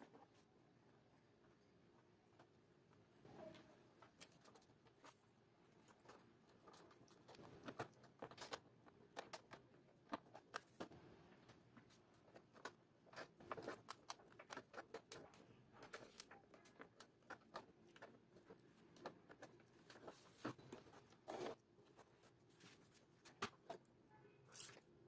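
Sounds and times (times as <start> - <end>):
hand tool scratching plastic: 12.3 - 23.9.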